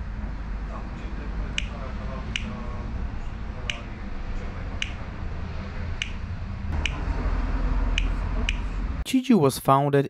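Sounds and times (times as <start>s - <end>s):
sharp single clicks: 1.6s - 2.5s.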